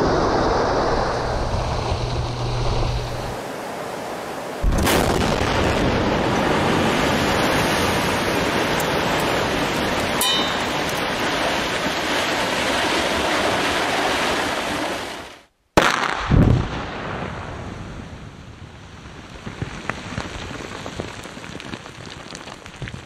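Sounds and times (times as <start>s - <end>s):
rushing rock and dust falling: 4.6s - 15.0s, 19.0s - 23.0s
sharp crack: 15.8s - 16.9s.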